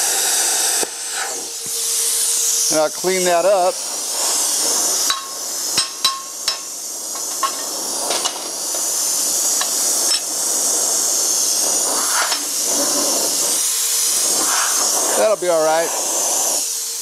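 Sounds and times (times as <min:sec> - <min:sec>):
steady hiss: 0:00.0 - 0:17.0
hammer striking steel: 0:05.1 - 0:08.4.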